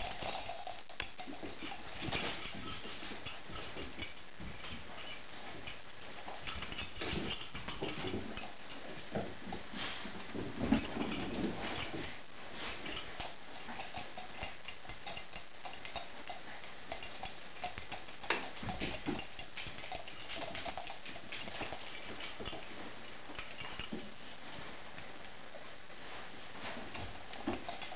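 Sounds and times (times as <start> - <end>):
dog tags jingling: 0.0 - 8.9, 10.7 - 24.1.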